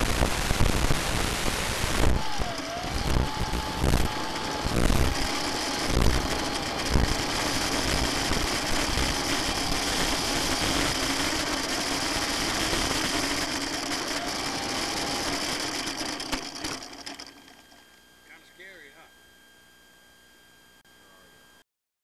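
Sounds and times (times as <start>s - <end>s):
electric motor and propeller whirring: 0.0s - 19.0s.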